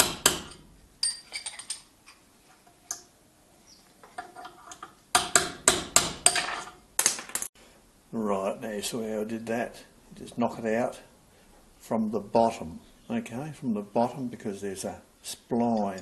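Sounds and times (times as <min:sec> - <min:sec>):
hammer striking steel punch: 0:00.0 - 0:00.6, 0:05.2 - 0:06.6.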